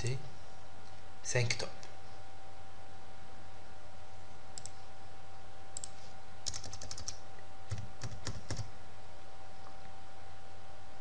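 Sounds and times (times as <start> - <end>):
steady hum: 0.0 - 11.0
computer keyboard typing: 5.8 - 8.7.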